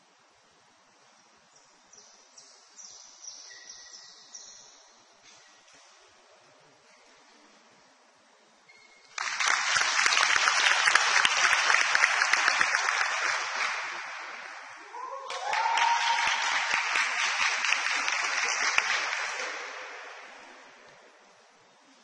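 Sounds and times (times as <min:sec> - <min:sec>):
group applause: 0:09.1 - 0:21.0
brief cheer: 0:14.8 - 0:17.1.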